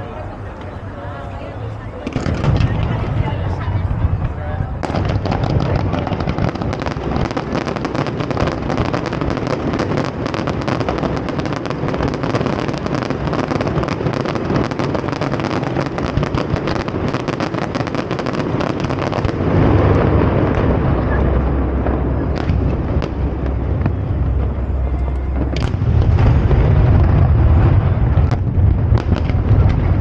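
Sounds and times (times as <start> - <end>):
fireworks crackling: 0.2 - 30.0
low rumble: 19.0 - 30.0.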